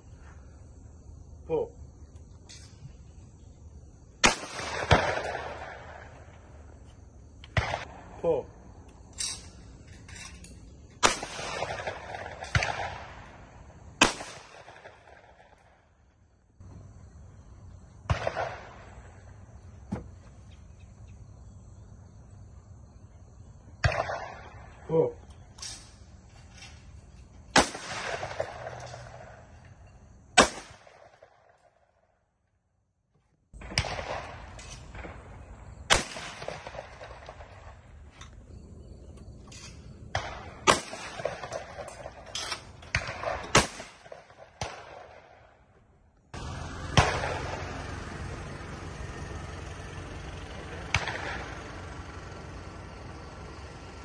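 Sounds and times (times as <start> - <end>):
shotgun shot with echo: 4.2 - 6.2, 7.5 - 8.4, 11.0 - 13.4, 14.0 - 15.6, 27.6 - 29.2, 30.4 - 31.4, 35.9 - 37.6, 40.1 - 42.2, 42.9 - 45.4, 46.8 - 47.7.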